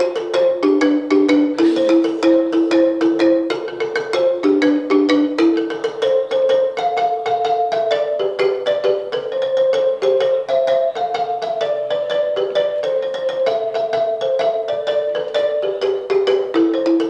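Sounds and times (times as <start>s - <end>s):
marimba played with mallets: 0.0s - 17.0s.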